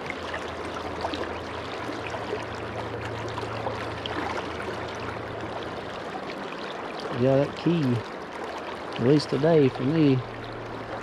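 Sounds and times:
low steady hum: 0.0 - 11.0
river current gurgling: 0.0 - 11.0.

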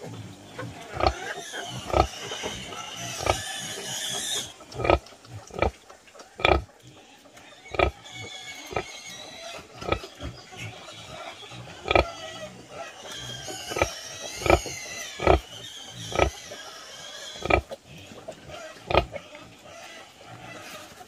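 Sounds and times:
sow grunting: 0.8 - 2.4, 3.0 - 3.5, 7.7 - 8.0, 11.8 - 12.6, 13.3 - 16.4, 17.3 - 17.7.

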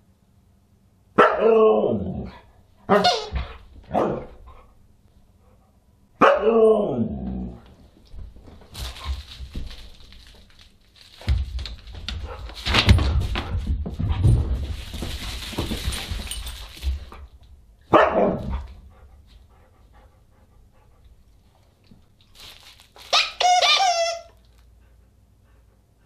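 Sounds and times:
dog playing with toys on rug: 2.9 - 5.8, 7.6 - 17.8, 18.4 - 25.9.

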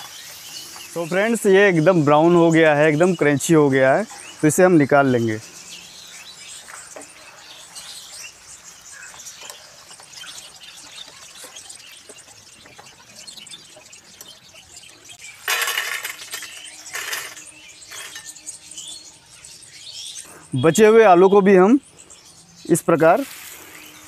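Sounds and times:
potatoes sizzling in oil: 0.0 - 2.1
potatoes clattering onto steel plate: 15.4 - 18.3.

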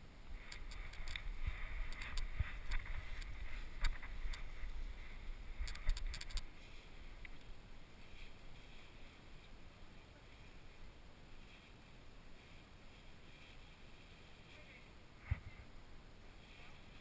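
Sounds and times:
faint steady hiss: 0.0 - 17.0
camera housing clicks and knocks: 5.6 - 6.5.

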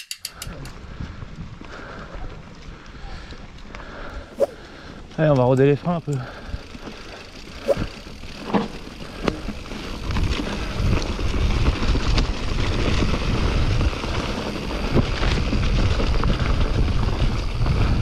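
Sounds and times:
bike clicks and knocks: 0.0 - 0.8, 5.2 - 13.1
wind buffeting microphone: 0.4 - 4.9, 9.1 - 18.0
bike tyres rolling on trail: 0.4 - 18.0.

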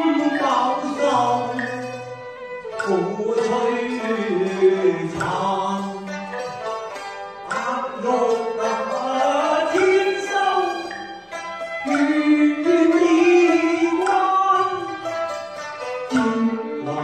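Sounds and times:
man singing opera: 0.0 - 2.2, 2.8 - 6.4, 7.5 - 10.9, 11.8 - 15.1, 16.1 - 17.0
instrumental accompaniment: 0.0 - 17.0.

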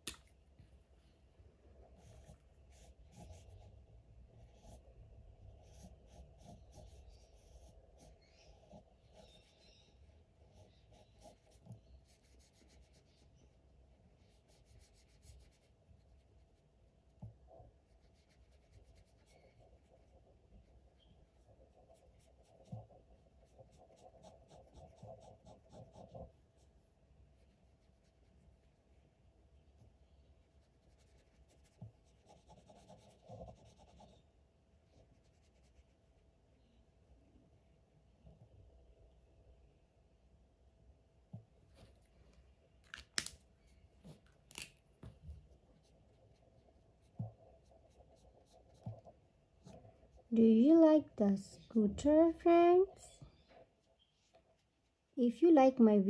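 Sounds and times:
marker scratching on paper: 2.0 - 3.7, 5.6 - 9.6, 10.5 - 13.3, 14.2 - 16.2, 17.9 - 20.2, 21.2 - 26.7, 30.6 - 34.2.

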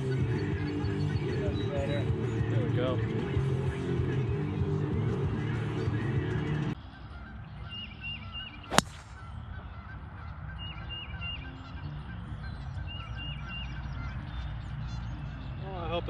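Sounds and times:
birds calling: 0.0 - 3.9, 6.6 - 16.0
golf club striking ball: 8.7 - 9.3.

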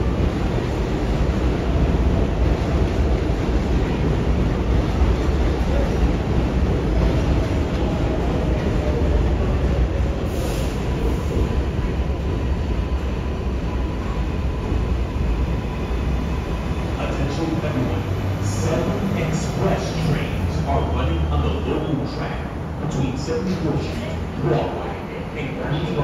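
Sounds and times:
subway train rumbling: 0.0 - 26.0.

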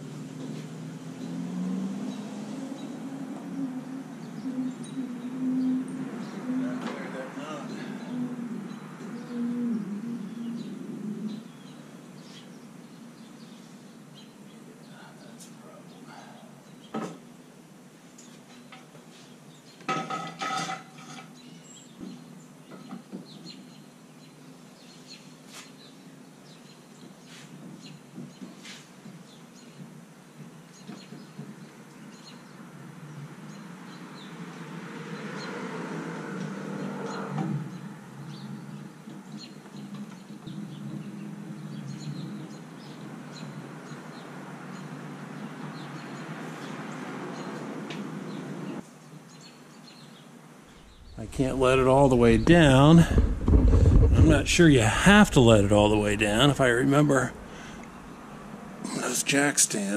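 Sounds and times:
metal and wood knocks: 19.9 - 21.2, 52.4 - 54.4.

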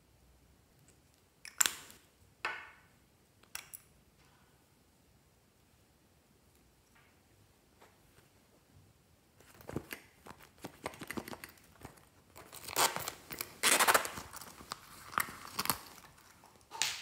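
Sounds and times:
pouch material rustling: 9.4 - 16.4.

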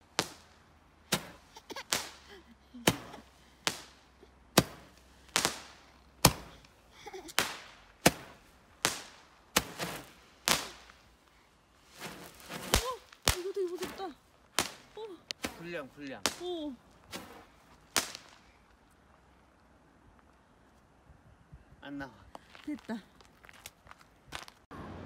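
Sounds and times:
firework pops with fizzing: 4.6 - 11.0, 12.0 - 18.6.

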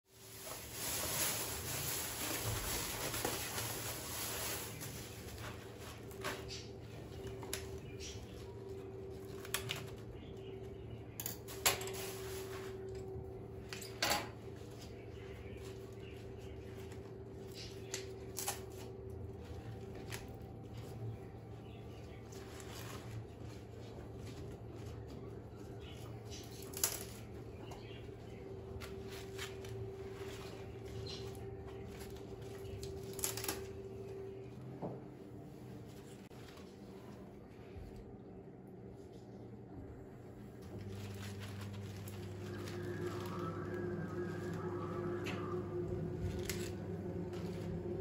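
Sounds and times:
plastic bag rustling: 0.1 - 10.3, 11.4 - 13.6, 18.6 - 33.7, 40.6 - 48.0
faint steady hum: 0.2 - 48.0.

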